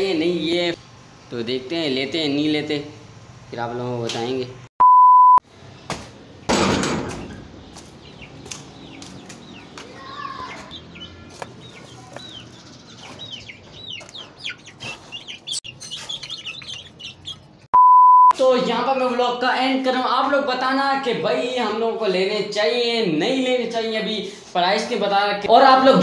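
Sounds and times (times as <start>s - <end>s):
test-tone beep: 4.8s - 5.4s, 17.8s - 18.4s
chicks peeping: 7.2s - 17.7s.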